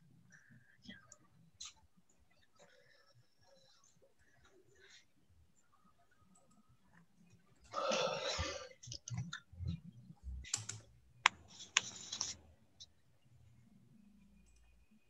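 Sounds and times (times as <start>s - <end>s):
mouse clicking: 10.5s - 12.4s.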